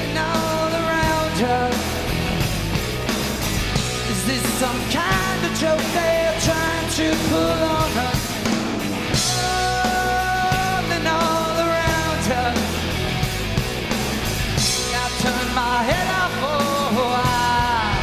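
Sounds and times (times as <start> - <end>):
rock band playing live: 0.0 - 18.0
singer holding long notes: 4.0 - 12.8.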